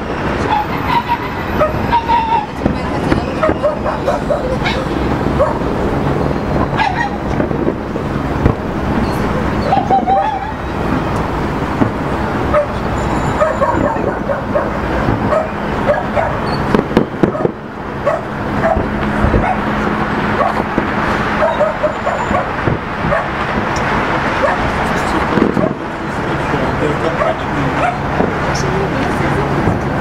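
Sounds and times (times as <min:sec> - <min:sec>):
dog barking: 0:01.6 - 0:02.5, 0:03.3 - 0:05.7, 0:06.7 - 0:07.2, 0:12.5 - 0:16.6, 0:17.2 - 0:19.7, 0:20.4 - 0:20.7, 0:21.4 - 0:23.4, 0:24.4 - 0:24.8, 0:27.1 - 0:28.1
fireworks booming and crackling: 0:02.3 - 0:21.4, 0:22.4 - 0:26.3.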